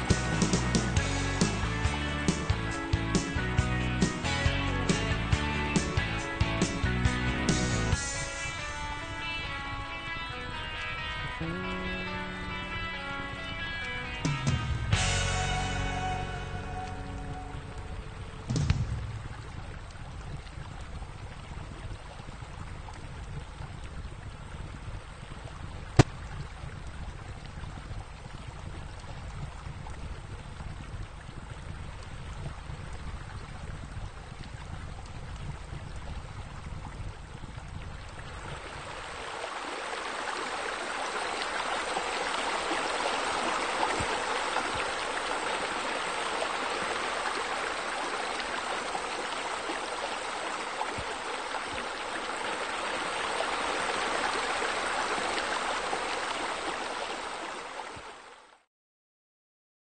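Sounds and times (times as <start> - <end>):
water splashing from spillways: 13.4 - 58.6.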